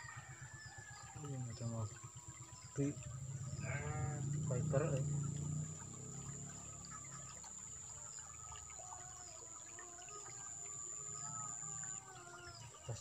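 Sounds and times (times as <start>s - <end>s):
faint chirps: 0.4s - 13.0s
low hum: 2.6s - 8.6s.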